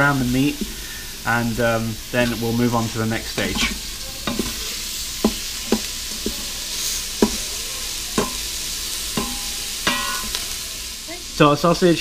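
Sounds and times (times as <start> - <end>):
sausage sizzling in a pot: 0.0 - 12.0
wooden spoon knocking against pot: 7.2 - 7.5.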